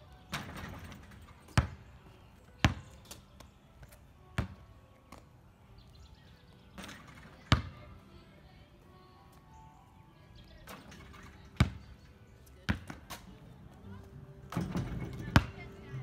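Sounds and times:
basketball bouncing on asphalt: 0.3 - 5.4, 6.5 - 8.0, 10.6 - 13.5, 14.5 - 15.8.

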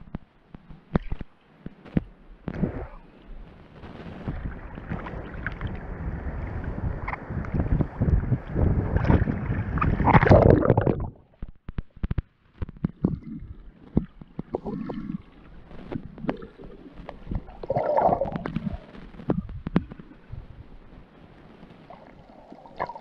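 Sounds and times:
sharp underwater clicks: 0.0 - 2.7, 9.8 - 20.2
muffled underwater noise: 2.5 - 11.9, 12.7 - 23.0
bubbly gurgles: 4.3 - 11.5, 12.8 - 20.4, 21.9 - 23.0
seawater sloshing and splashing: 4.3 - 11.5.

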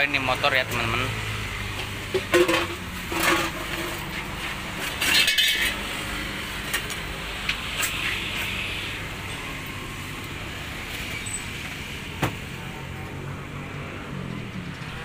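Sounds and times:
utensils and containers clinking: 2.1 - 4.2, 4.8 - 6.0.

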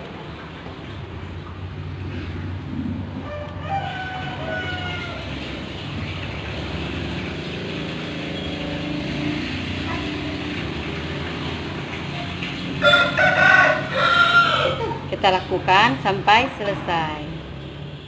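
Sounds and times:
vehicle motor rumbling: 0.0 - 13.1
rooster crowing: 3.2 - 5.4, 12.8 - 15.1.

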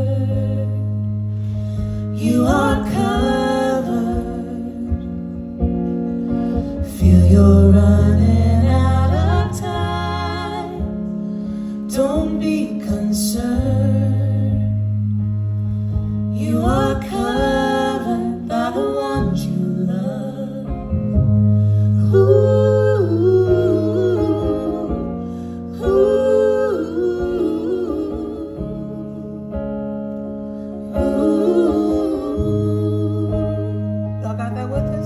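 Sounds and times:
women singing with vibrato: 0.0 - 1.0, 2.0 - 5.2, 6.8 - 11.1, 16.3 - 21.2, 22.0 - 29.8, 30.8 - 34.2
electric guitar: 0.0 - 35.0.

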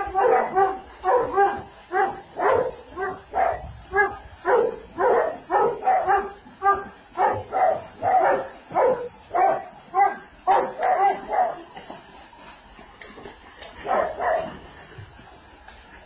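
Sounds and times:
dog barking and yelping: 0.0 - 11.7.

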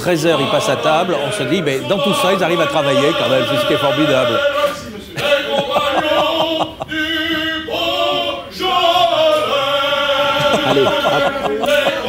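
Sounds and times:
person singing long notes: 5.4 - 12.0.

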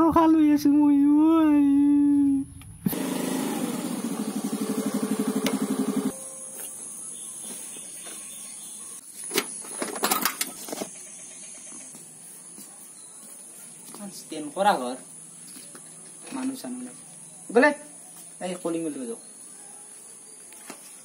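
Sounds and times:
scooter engine running: 2.9 - 6.2.

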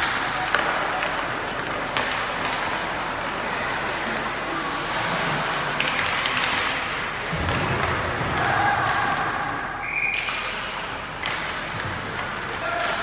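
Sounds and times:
sticks and puck knocking boards: 0.0 - 3.1
skates scraping: 0.0 - 13.0
voices in rink: 0.0 - 13.0.

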